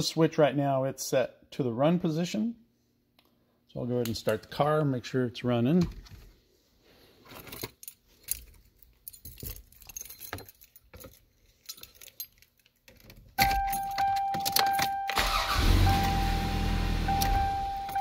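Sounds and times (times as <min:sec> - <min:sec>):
keys jangling: 0:07.3 - 0:15.2
car warning chime: 0:13.4 - 0:18.0
car engine cranking and running: 0:15.1 - 0:18.0.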